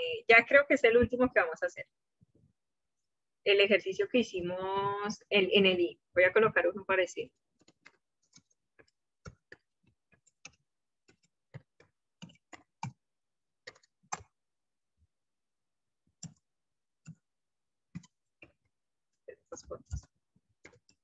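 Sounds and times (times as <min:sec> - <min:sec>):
keyboard typing clicks: 0:13.6 - 0:14.4.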